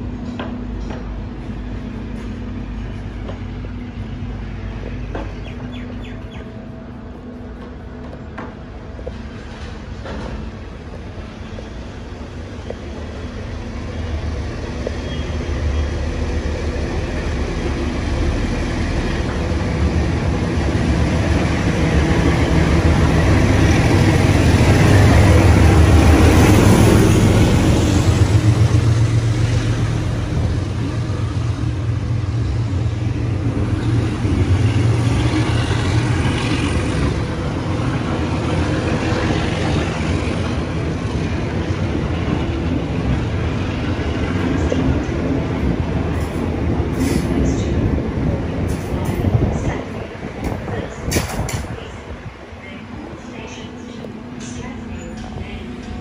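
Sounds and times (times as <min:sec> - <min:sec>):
train motors humming: 0:00.0 - 0:56.0
train wheel noise: 0:00.0 - 0:56.0.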